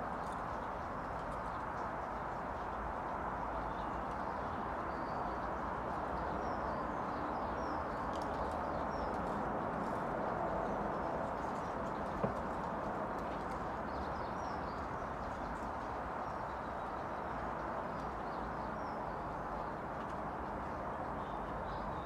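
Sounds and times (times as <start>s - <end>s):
outdoor background noise: 0.0s - 22.0s.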